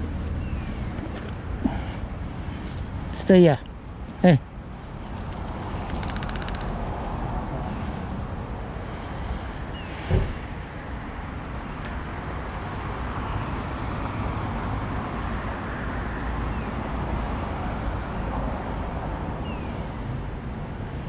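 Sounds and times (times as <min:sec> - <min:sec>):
road traffic rumble: 0:00.0 - 0:21.0
thump: 0:10.1 - 0:10.5.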